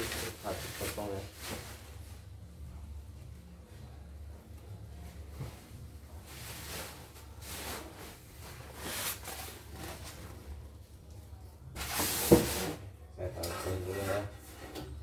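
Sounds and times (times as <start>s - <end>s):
packing foam and bubble wrap rustling: 0.0s - 2.4s, 5.7s - 10.5s.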